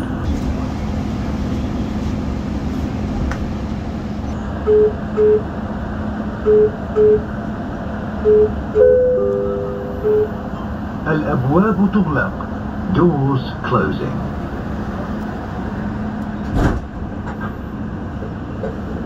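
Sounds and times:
train humming at platform: 0:00.0 - 0:19.0
short warning beeps: 0:04.7 - 0:05.5, 0:06.4 - 0:07.3, 0:08.2 - 0:10.4.

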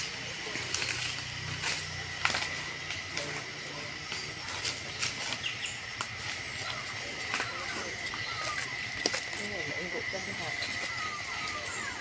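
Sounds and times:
footsteps through dry leaves: 0:00.0 - 0:12.0
steady high tone: 0:05.7 - 0:12.0.

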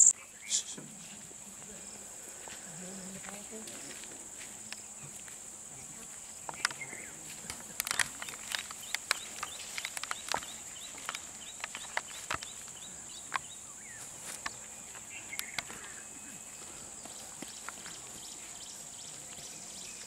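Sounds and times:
twigs and brush snapping: 0:06.4 - 0:16.0, 0:17.0 - 0:18.1.

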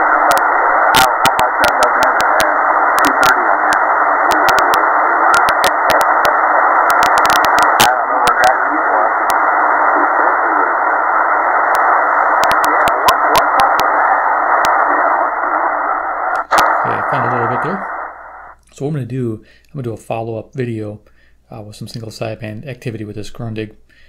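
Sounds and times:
static crackles: 0:00.0 - 0:19.2
radio band noise hiss: 0:00.0 - 0:23.6.

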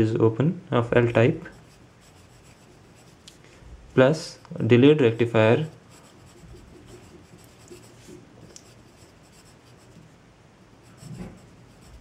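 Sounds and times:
pencil scratching on paper: 0:01.4 - 0:03.3, 0:05.1 - 0:10.0, 0:10.8 - 0:12.0.

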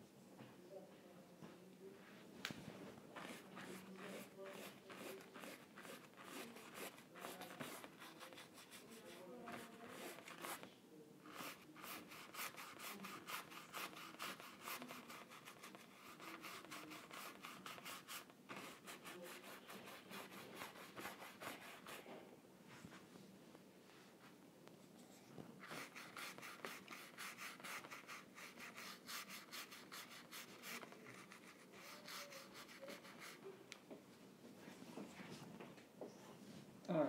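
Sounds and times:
paintbrush scrubbing on canvas: 0:03.1 - 0:10.7, 0:11.3 - 0:22.1, 0:25.6 - 0:33.5.

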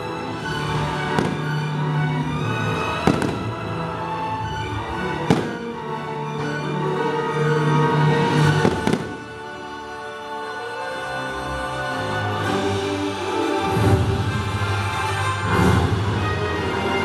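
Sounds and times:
show music: 0:00.0 - 0:17.0
fireworks bangs: 0:01.0 - 0:01.8, 0:02.9 - 0:03.8, 0:05.2 - 0:05.8, 0:08.4 - 0:09.5.

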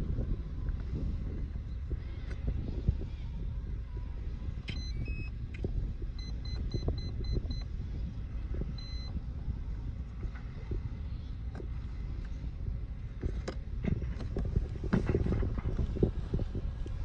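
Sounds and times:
wind rumble on microphone: 0:00.0 - 0:17.0
electronic start-up beeps: 0:04.7 - 0:05.3, 0:08.7 - 0:09.1.

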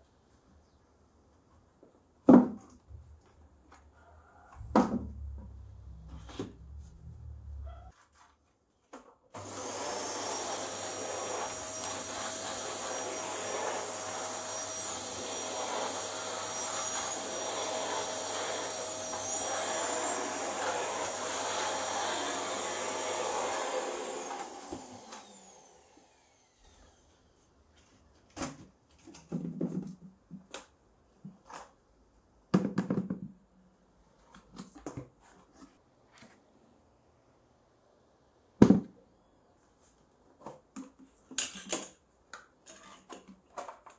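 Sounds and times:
vacuum cleaner whining: 0:09.4 - 0:27.3.

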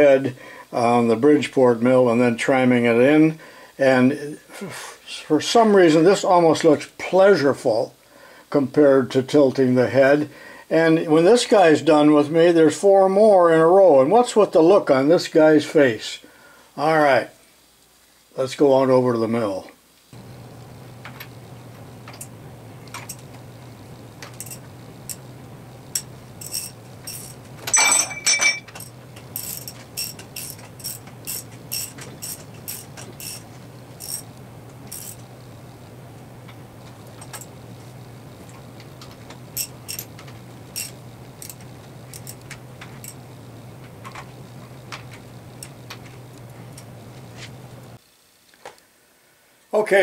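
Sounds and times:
steady low hum: 0:20.1 - 0:48.0
metal ratchet clicks: 0:24.2 - 0:25.3, 0:25.9 - 0:33.4, 0:34.0 - 0:34.3, 0:34.9 - 0:35.2, 0:39.6 - 0:43.2
metallic clank: 0:25.9 - 0:33.4.

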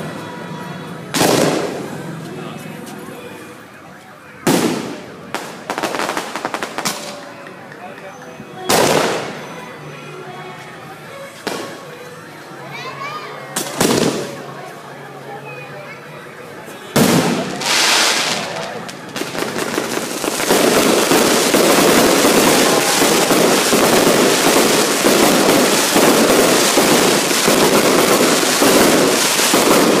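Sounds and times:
fireworks bangs and crackling: 0:00.9 - 0:03.0, 0:04.4 - 0:07.6, 0:08.7 - 0:09.5, 0:11.4 - 0:11.8, 0:13.6 - 0:14.5, 0:16.9 - 0:30.0
firework hissing burst: 0:17.0 - 0:18.7, 0:19.4 - 0:30.0.

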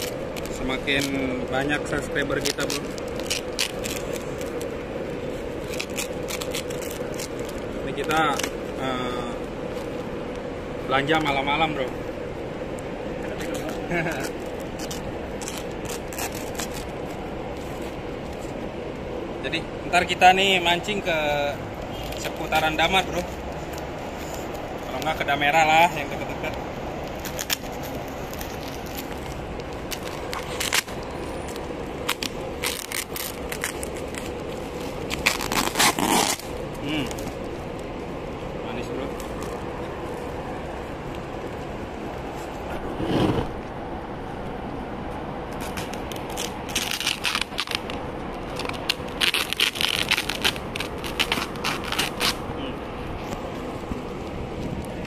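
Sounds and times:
plastic wrap crackling and tearing: 0:00.0 - 0:08.6, 0:13.4 - 0:17.3, 0:26.4 - 0:37.9, 0:45.6 - 0:52.5.

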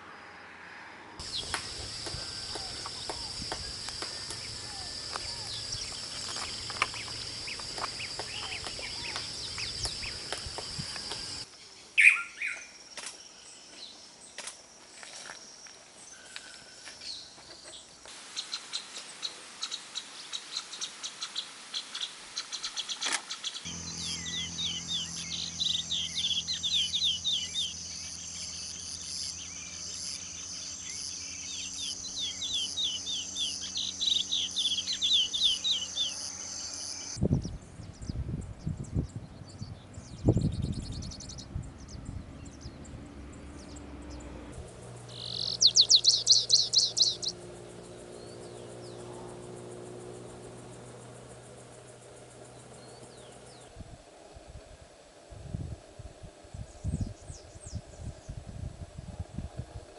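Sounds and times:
high-pitched insect drone: 0:01.2 - 0:11.5, 0:23.7 - 0:37.2
birds calling and chirping: 0:01.2 - 0:14.4, 0:15.6 - 0:53.8.

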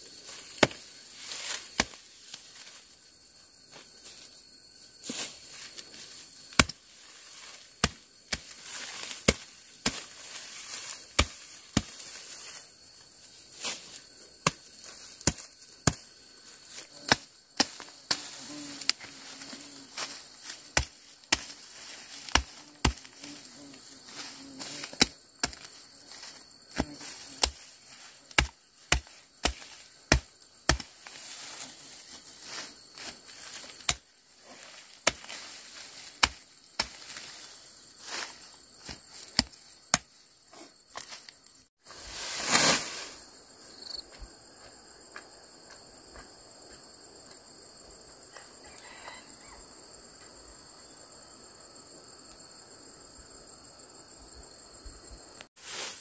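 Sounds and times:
sickle cutting dry grass: 0:00.1 - 0:03.0, 0:05.0 - 0:43.4, 0:55.6 - 0:56.0.

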